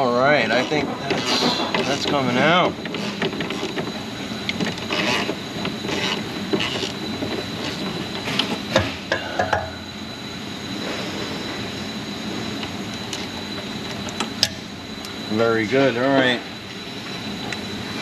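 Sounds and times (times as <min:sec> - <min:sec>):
squeaking metal scrapes: 0:00.0 - 0:09.3.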